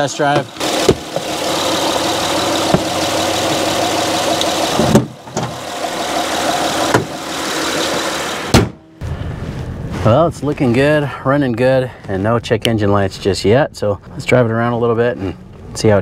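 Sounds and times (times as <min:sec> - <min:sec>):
car engine idling: 0:00.0 - 0:09.1
thump: 0:04.8 - 0:05.6, 0:08.5 - 0:08.8.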